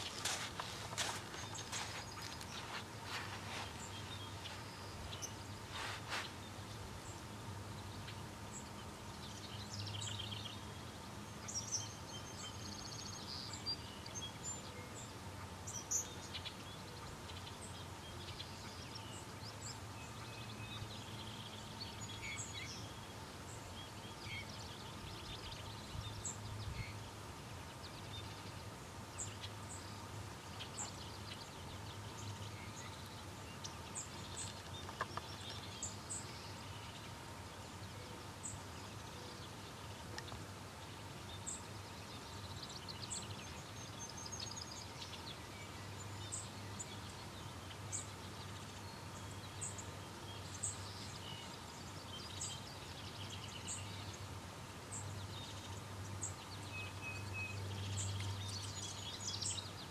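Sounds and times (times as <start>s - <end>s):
birds chirping and calling: 0.0s - 7.3s, 29.2s - 37.2s
faint steady hum: 0.0s - 59.9s.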